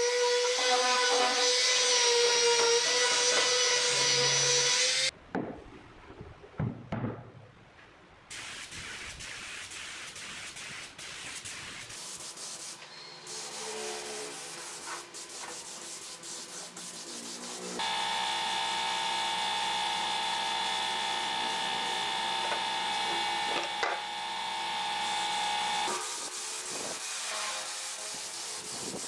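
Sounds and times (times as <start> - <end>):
spray gun hissing: 8.3 - 29.0
machine hum with high whine: 17.8 - 26.0.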